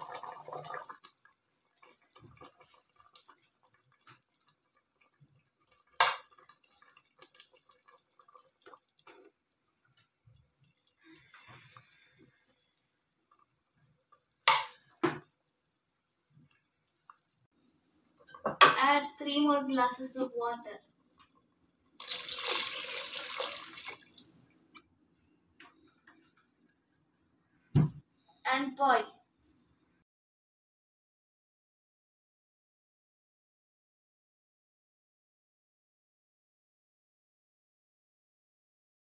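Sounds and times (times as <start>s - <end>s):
liquid splashing and dripping: 20.9s - 24.7s.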